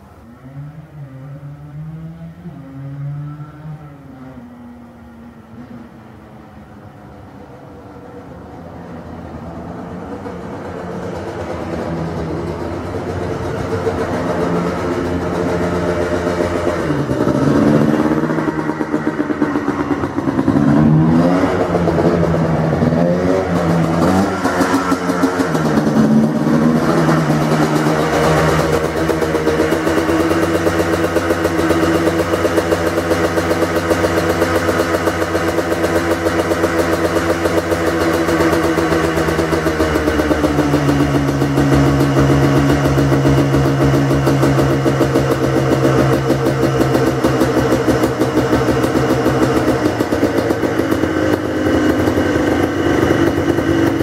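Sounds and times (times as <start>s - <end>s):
two-stroke engine revving: 9.8s - 54.0s.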